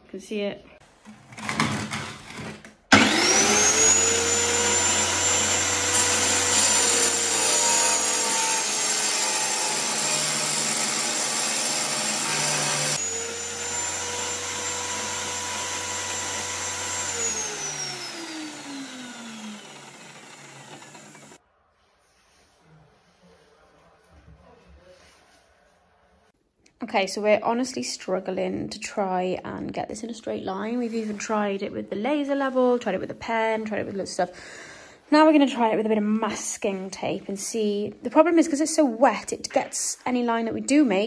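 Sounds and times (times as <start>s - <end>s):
wet tile cutter motor: 1.4s - 21.4s
saw winding down: 2.9s - 21.4s.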